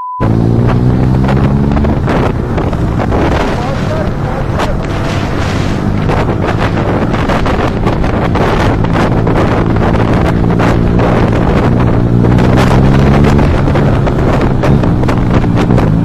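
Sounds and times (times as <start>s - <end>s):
motorcycle engine accelerating: 0.2s - 16.0s
wind buffeting microphone: 0.2s - 16.0s.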